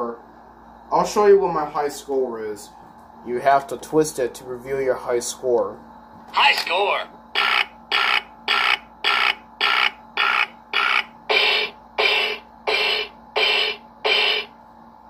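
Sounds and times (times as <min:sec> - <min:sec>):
toy electronic beeps: 0:07.4 - 0:14.5.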